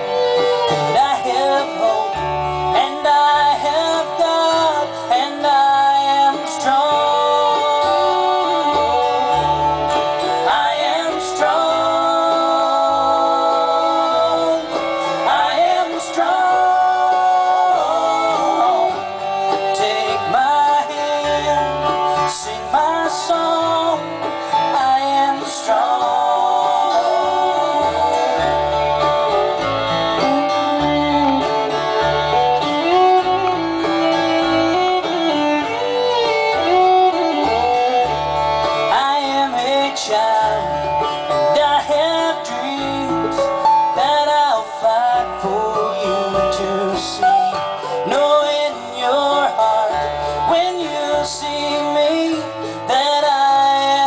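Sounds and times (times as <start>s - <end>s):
bluegrass band playing: 0.0s - 54.0s
person singing: 0.0s - 54.0s.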